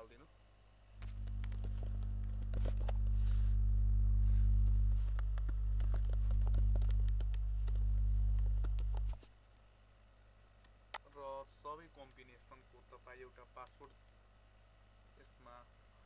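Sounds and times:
low electrical hum: 0.0 - 16.0
computer keys typing: 1.0 - 3.2, 5.1 - 9.2.

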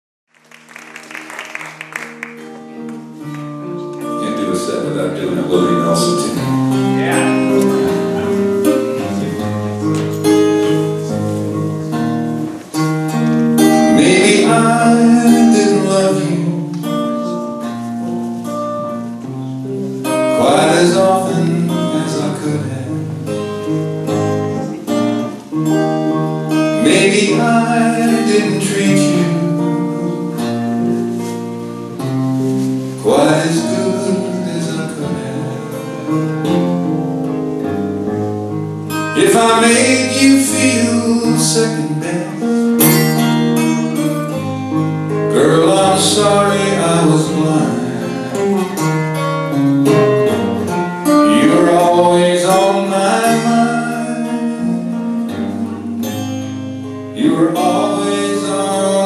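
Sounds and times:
strummed acoustic guitar: 0.9 - 59.0
man singing: 4.0 - 10.0, 13.6 - 17.7, 20.0 - 23.4, 26.5 - 31.0, 32.4 - 37.0, 39.0 - 44.5, 45.1 - 49.0, 49.8 - 56.4, 57.1 - 59.0.

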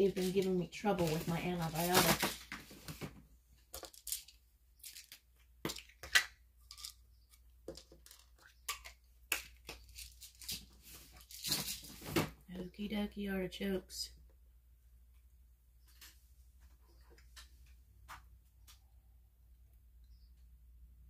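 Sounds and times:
pill bottles and packets handled: 0.0 - 12.2.

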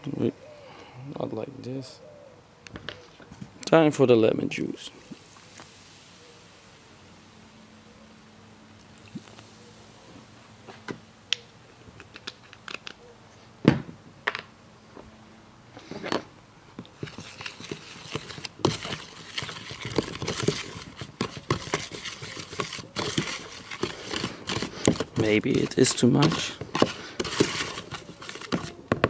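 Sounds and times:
fork scraping plastic tub: 17.0 - 28.8.

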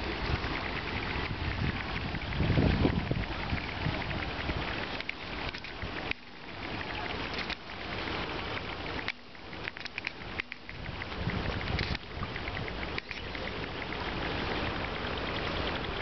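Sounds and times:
scattered crackles: 0.0 - 16.0
wind gusting over microphone: 0.0 - 16.0.

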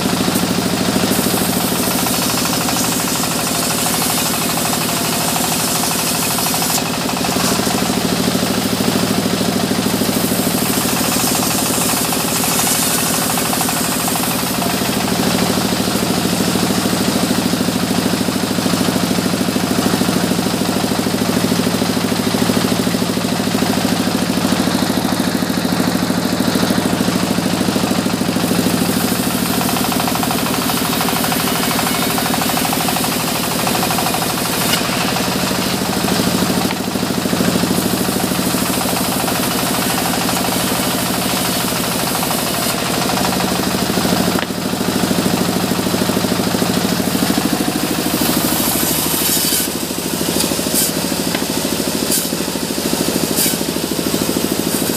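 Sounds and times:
band saw ripping wood: 0.0 - 15.6, 28.5 - 44.8, 47.1 - 54.9.

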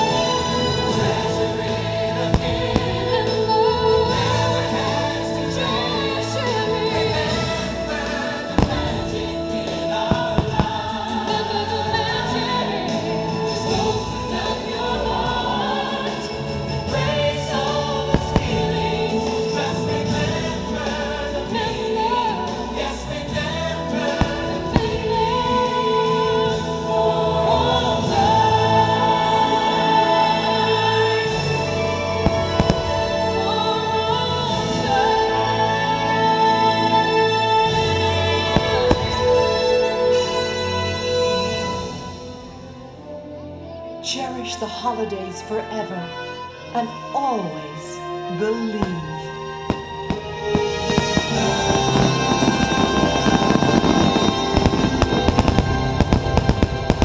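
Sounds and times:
firework bangs: 0.0 - 5.0, 7.1 - 13.0, 16.9 - 26.7, 31.0 - 35.0, 37.8 - 42.1, 48.9 - 57.0
choir singing over orchestral music: 0.0 - 57.0.

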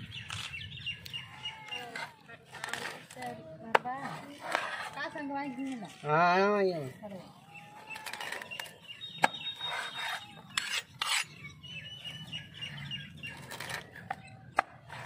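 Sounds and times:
knife blade scraping: 9.4 - 11.5.

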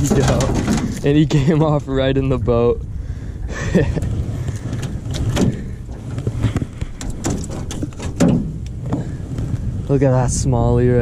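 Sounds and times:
clothing rubbing microphone: 4.0 - 9.9.

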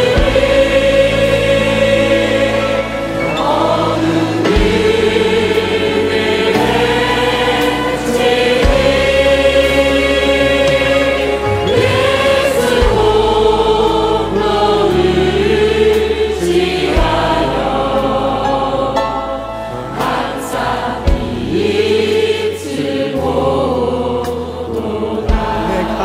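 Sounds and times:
congregation and choir singing hymn: 0.0 - 26.0
piano and orchestra accompaniment: 0.0 - 26.0.

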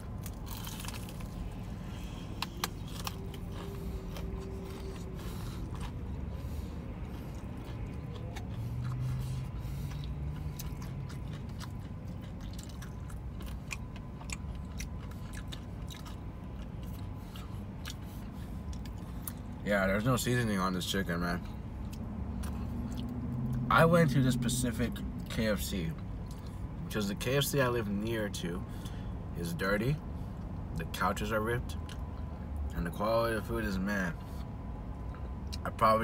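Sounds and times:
person chewing crispy chicken: 0.0 - 19.6, 21.4 - 23.6, 25.2 - 26.7.

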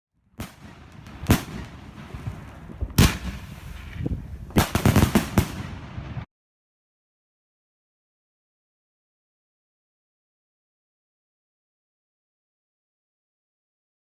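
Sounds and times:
fireworks banging and crackling: 0.3 - 6.3.

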